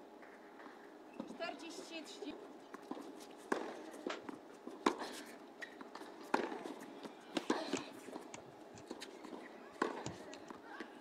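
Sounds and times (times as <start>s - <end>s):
tennis ball bouncing on hard court: 2.8s - 5.0s, 5.6s - 10.4s.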